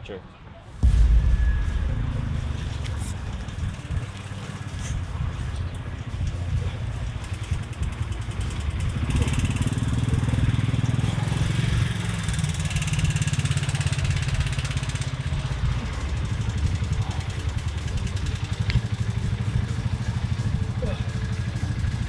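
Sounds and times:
vehicle engine driving past: 0.7 - 6.8.

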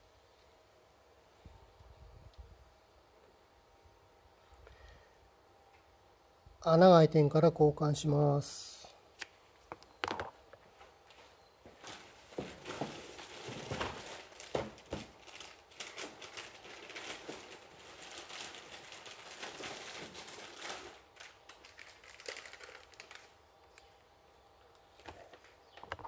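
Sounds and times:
material crinkling and rustling: 9.6 - 24.1, 24.8 - 26.0.

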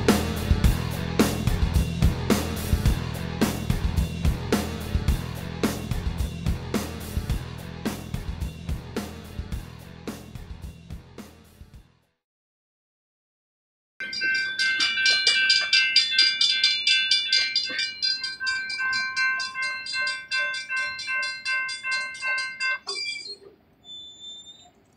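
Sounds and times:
railroad crossing bells ringing: 14.0 - 23.5.

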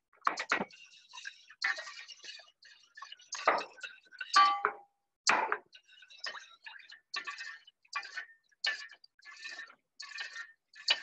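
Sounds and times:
utensil tapping cookware: 4.4 - 4.8.

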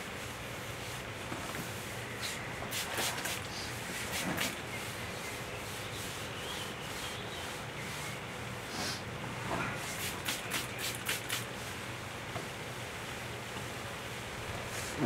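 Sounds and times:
pad scrubbing wooden table top: 2.2 - 8.2.

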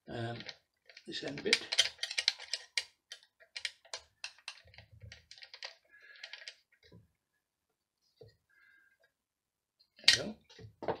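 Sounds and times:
light clicks and small knocks: 0.1 - 7.2.

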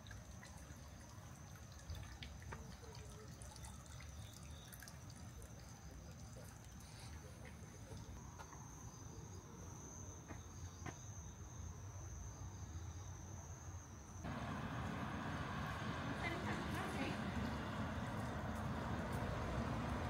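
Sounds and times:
loud busy noise: 14.3 - 20.0.

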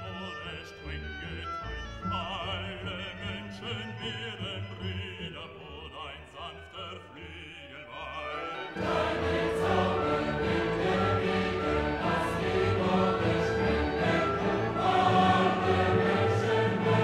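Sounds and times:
classical vocal music: 0.0 - 17.0
choral singing: 8.4 - 17.0.

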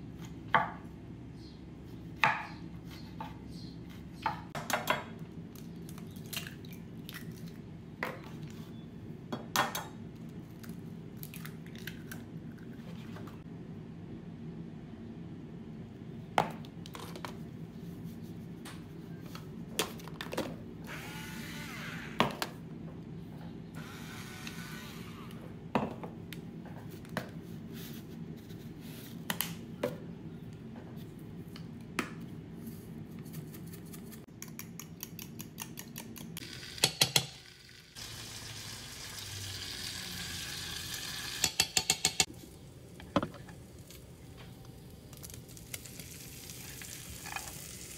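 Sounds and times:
utensils clinking and tapping: 41.4 - 42.3.

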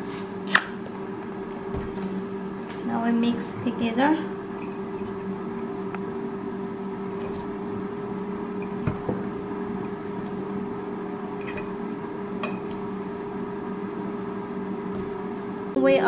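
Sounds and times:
electric hum: 0.0 - 16.0
clinks against glass: 11.4 - 11.7.

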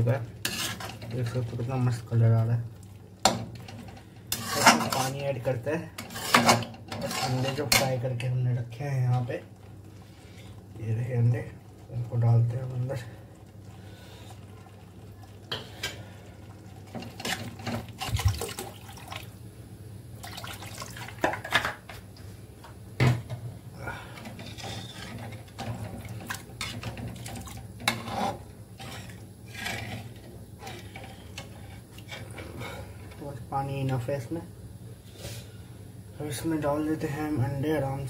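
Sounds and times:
metal spatula scraping pan: 0.4 - 1.4, 3.6 - 5.4, 6.0 - 8.0, 24.2 - 32.8
water poured into pan: 12.9 - 19.4, 20.2 - 21.4.

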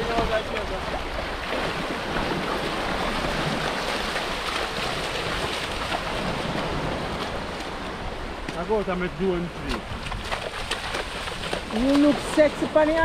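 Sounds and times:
wind on microphone: 0.0 - 8.5
small waves washing: 0.0 - 13.0.

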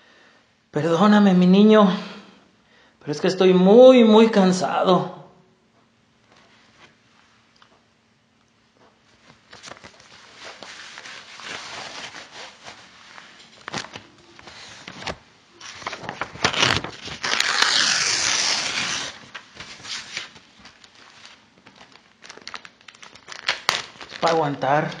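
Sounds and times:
paper rustling and crinkling: 8.8 - 25.0.

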